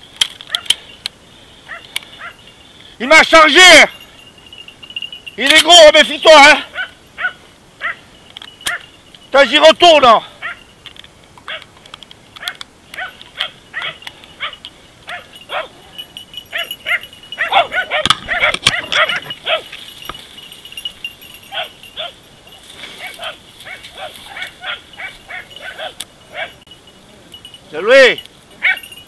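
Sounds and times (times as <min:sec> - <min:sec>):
dogs barking: 0:00.4 - 0:00.9, 0:01.6 - 0:02.5, 0:06.6 - 0:09.0, 0:10.4 - 0:10.7, 0:11.4 - 0:11.7, 0:12.4 - 0:20.2, 0:21.4 - 0:26.7, 0:28.6 - 0:29.0.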